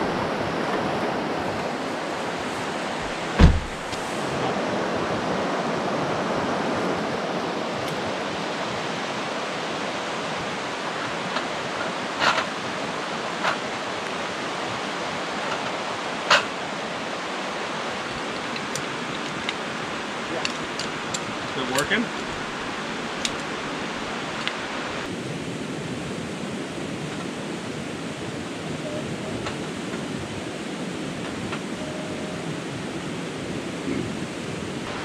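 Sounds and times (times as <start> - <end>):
river rushing: 0.0 - 35.0
sharp knocks: 3.4 - 3.9.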